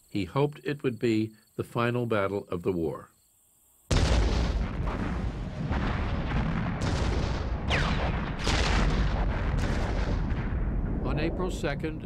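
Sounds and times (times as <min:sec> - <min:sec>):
cannon booms: 0:03.9 - 0:12.0
deep rumble: 0:04.1 - 0:12.0.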